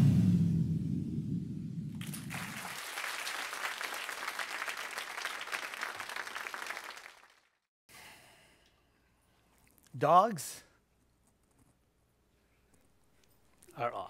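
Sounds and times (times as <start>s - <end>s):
audience applauding: 2.0s - 7.6s.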